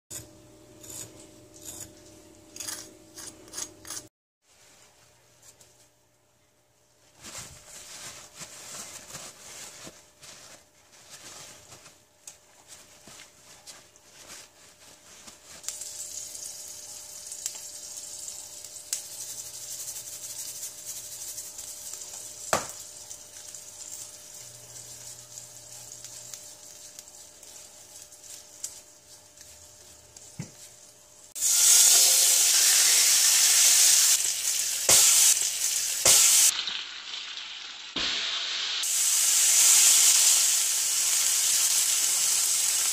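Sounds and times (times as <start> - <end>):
paper towel crinkling: 6.8 - 15.7, 23.1 - 31.2
chicken sizzling on griddle: 15.6 - 29.0, 31.3 - 42.9.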